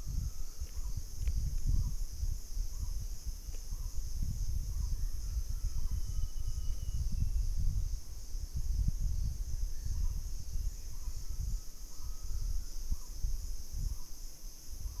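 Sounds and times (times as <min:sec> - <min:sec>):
insect chorus: 0:00.0 - 0:15.0
wind on microphone: 0:00.0 - 0:15.0.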